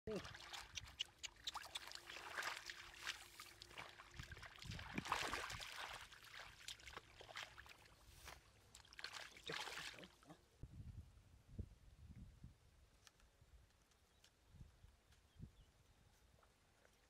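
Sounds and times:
muddy water splashing: 0.1s - 10.4s.

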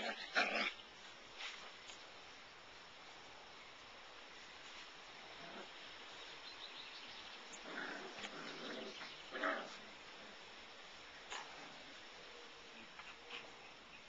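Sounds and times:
puppies growling and whimpering: 7.6s - 9.8s.

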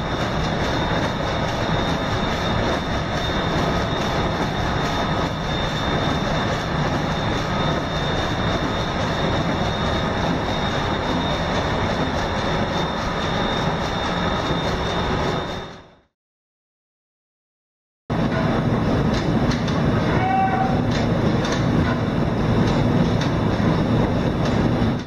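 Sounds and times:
marine diesel engine running: 0.0s - 16.1s.

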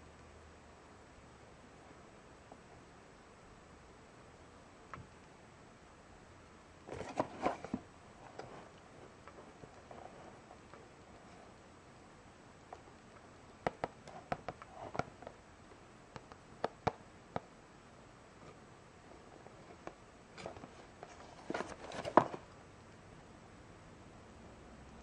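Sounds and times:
cardboard box handling: 6.9s - 7.8s, 20.4s - 22.5s.

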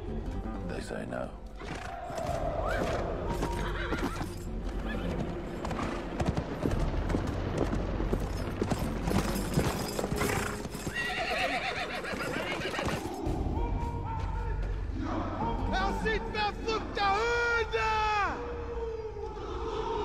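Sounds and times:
horse whinnying: 1.6s - 5.2s, 9.8s - 13.1s
horse hooves galloping: 1.6s - 13.3s.

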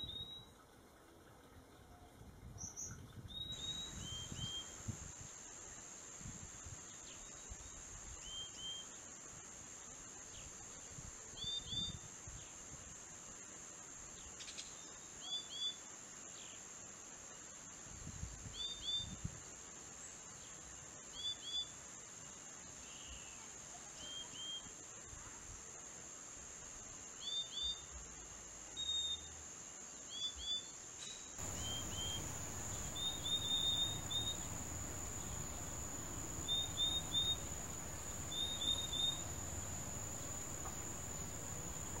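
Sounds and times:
bird calling clear notes: 31.4s - 42.0s
high insect drone: 31.4s - 42.0s.

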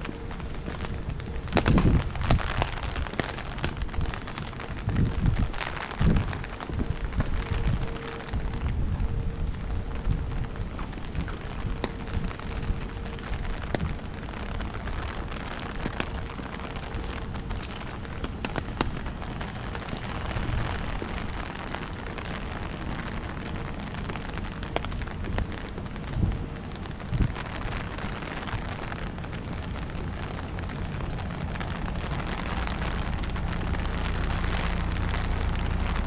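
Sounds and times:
rain falling: 0.0s - 36.0s
wind buffeting microphone: 0.0s - 36.0s.

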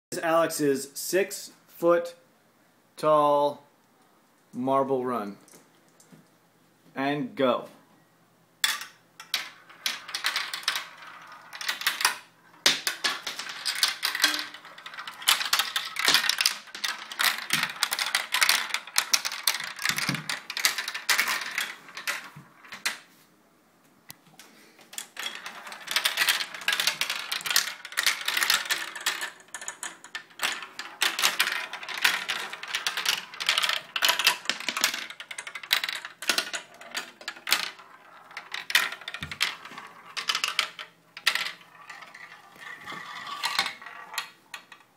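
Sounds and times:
marbles rolling and clattering: 8.6s - 23.1s, 24.9s - 44.9s.

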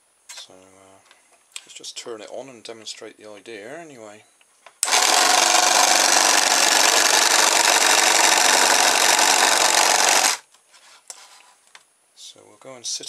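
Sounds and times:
toothbrush motor buzzing: 4.8s - 10.4s.

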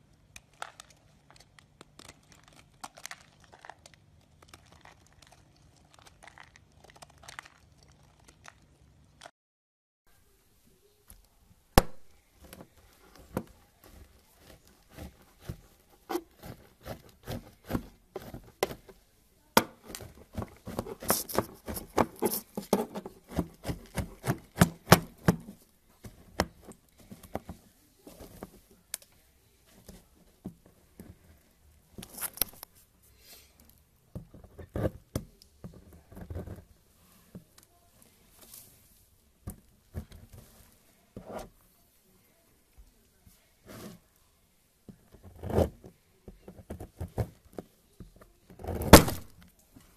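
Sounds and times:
soap flakes crunching: 0.3s - 9.3s
knife cutting soap bar: 11.8s - 19.0s, 19.6s - 27.5s.

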